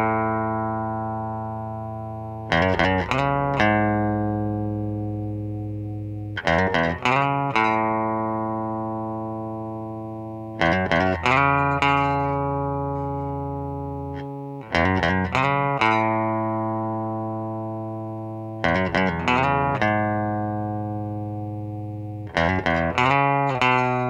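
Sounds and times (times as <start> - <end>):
quick plucked notes: 6.2 - 8.2.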